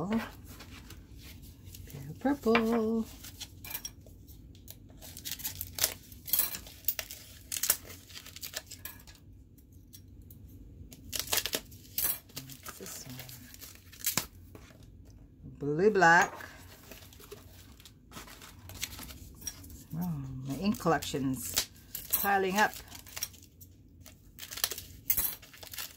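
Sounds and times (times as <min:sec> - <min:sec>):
packaging crinkling and tearing: 0:05.0 - 0:08.8, 0:10.9 - 0:14.5, 0:16.6 - 0:19.8, 0:21.4 - 0:25.9.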